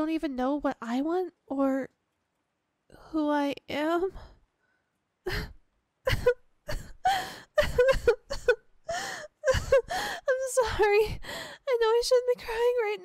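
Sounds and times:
woman crying and sobbing: 5.3s - 12.8s.

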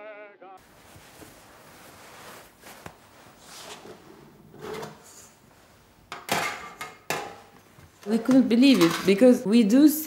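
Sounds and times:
gloved hands rubbing and sliding: 0.6s - 6.0s.

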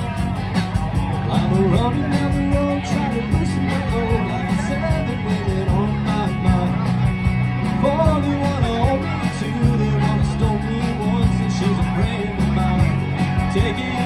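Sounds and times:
drums: 0.0s - 14.0s
electric guitar: 0.0s - 14.0s
keyboard: 0.0s - 14.0s
person singing: 0.0s - 14.0s.

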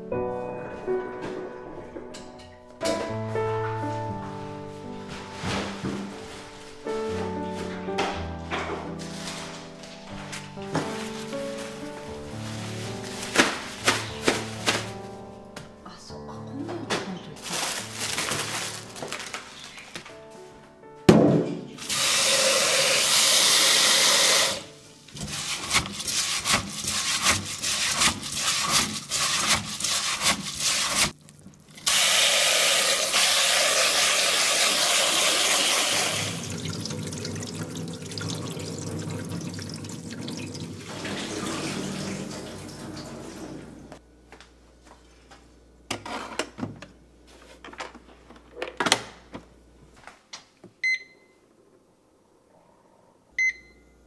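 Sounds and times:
tap water running into a pot: 21.8s - 43.6s
hands swishing rice in water: 25.1s - 31.2s.

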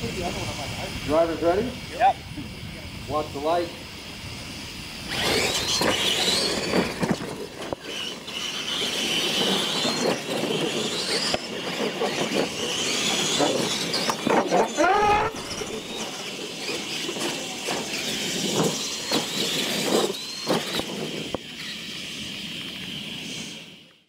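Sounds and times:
electric motor whine: 0.0s - 24.0s
tyres rattling on dirt: 5.1s - 23.3s.

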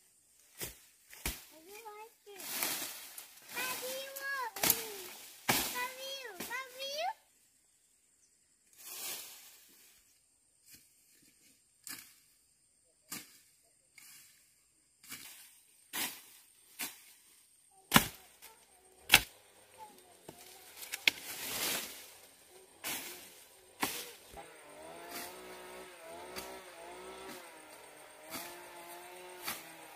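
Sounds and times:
scraping strokes: 19.1s - 24.4s.

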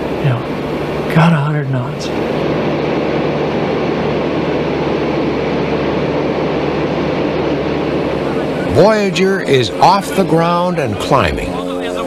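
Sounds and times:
propeller aircraft engines droning: 0.0s - 12.0s
rushing air: 1.9s - 9.7s.

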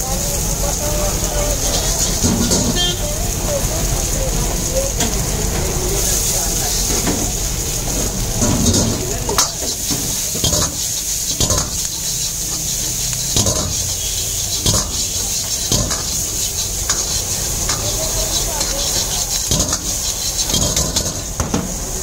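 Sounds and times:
food sizzling in a wok: 0.0s - 22.0s
metal utensil scraping a wok: 1.3s - 3.0s, 6.2s - 21.4s.

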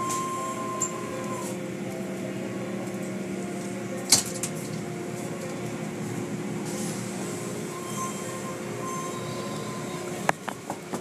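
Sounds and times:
muffled mechanical hum: 0.0s - 11.0s.

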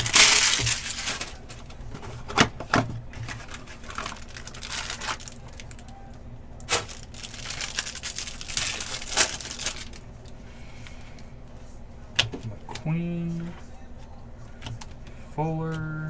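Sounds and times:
cardboard tearing: 0.0s - 1.6s, 3.2s - 5.8s, 6.7s - 10.0s
plastic wrapper crinkling: 0.0s - 1.8s, 3.1s - 6.0s, 6.6s - 10.3s.

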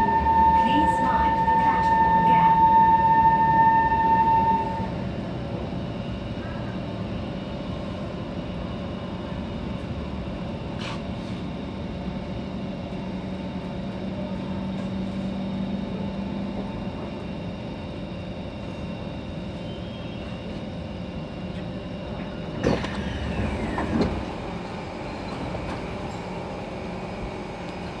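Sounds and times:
train motor hum: 0.0s - 7.2s, 18.5s - 28.0s
sliding doors opening: 22.6s - 24.4s.

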